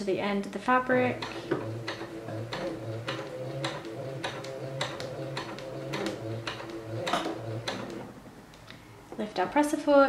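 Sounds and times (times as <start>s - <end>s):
sewing machine stitching: 1.0s - 8.2s.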